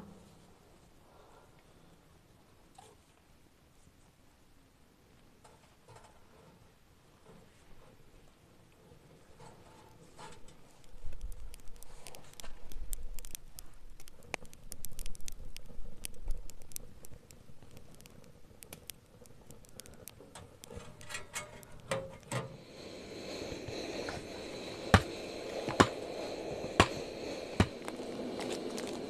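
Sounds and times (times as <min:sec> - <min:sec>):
steady hiss: 0:00.0 - 0:29.0
firewood crackling and popping: 0:08.7 - 0:29.0.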